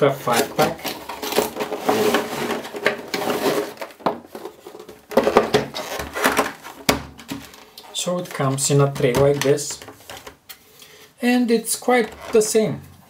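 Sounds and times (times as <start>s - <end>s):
plastic tray sliding out: 0.3s - 4.6s
cardboard box being opened: 0.3s - 6.8s.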